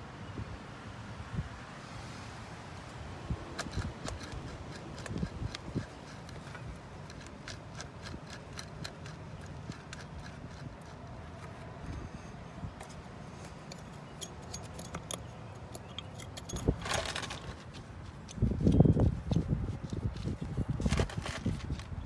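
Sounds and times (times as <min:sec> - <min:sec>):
light metallic clicks: 0:12.8 - 0:16.8.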